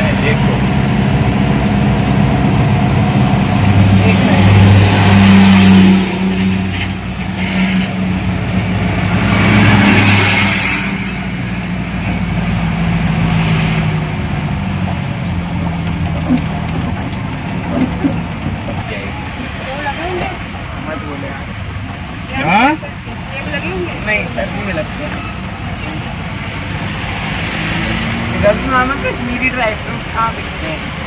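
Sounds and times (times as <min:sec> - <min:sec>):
vehicle engine and road noise: 0:00.0 - 0:31.0.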